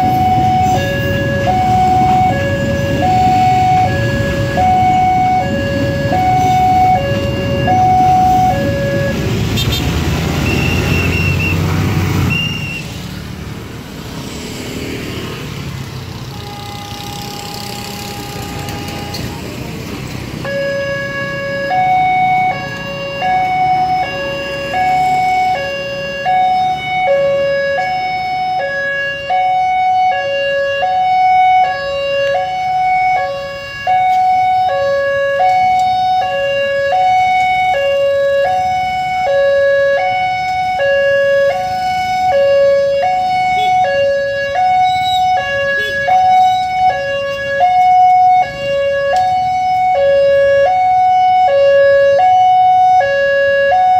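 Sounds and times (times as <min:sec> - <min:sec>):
two-tone level crossing alarm: 0:00.0 - 0:09.7, 0:20.4 - 0:53.9.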